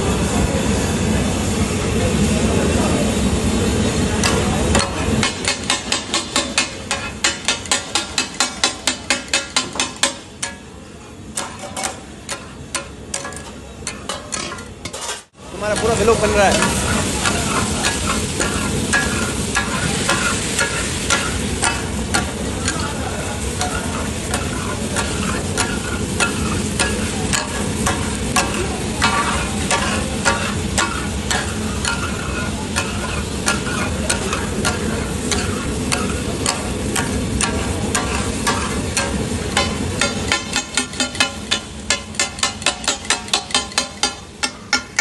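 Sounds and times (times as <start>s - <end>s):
loud frying sizzle: 0.0s - 45.0s
spatulas clacking on iron griddle: 4.2s - 45.0s.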